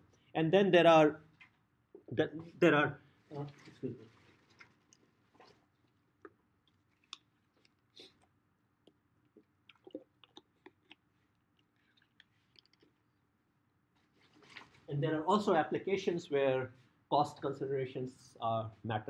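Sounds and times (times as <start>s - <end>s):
faint clicks and taps: 11.6s - 13.0s.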